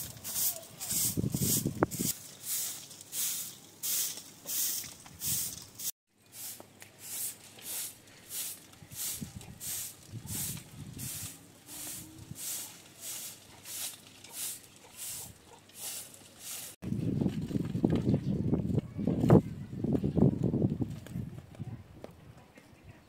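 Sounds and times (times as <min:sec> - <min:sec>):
broom sweeping dirt: 0:00.0 - 0:16.8.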